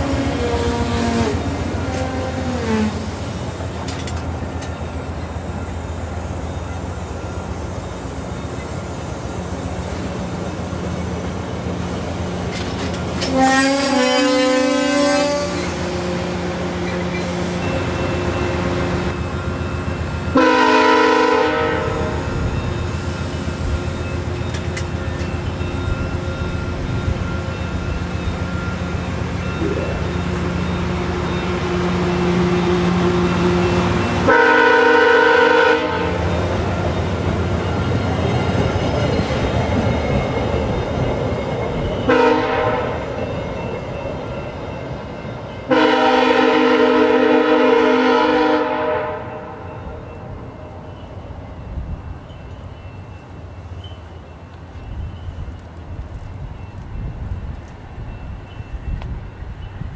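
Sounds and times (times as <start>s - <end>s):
train horn blasts: 0.0s - 3.1s, 13.2s - 17.4s, 20.3s - 22.5s, 30.9s - 36.4s, 42.1s - 43.1s, 45.7s - 50.0s
diesel locomotive engine rumble: 0.0s - 59.9s
train wheels rumbling: 0.0s - 59.9s.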